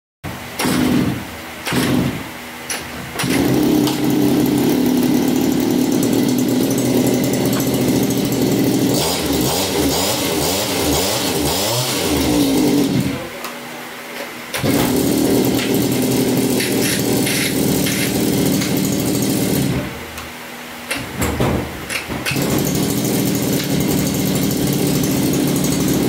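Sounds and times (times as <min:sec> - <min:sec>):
two-stroke engine running: 0:00.6 - 0:02.2, 0:03.2 - 0:13.3, 0:14.5 - 0:20.1, 0:22.2 - 0:26.0
recoil starter pulls: 0:00.6 - 0:13.2, 0:14.5 - 0:20.3, 0:20.9 - 0:26.0
engine revving: 0:03.2 - 0:13.3, 0:14.5 - 0:20.0, 0:22.3 - 0:26.0.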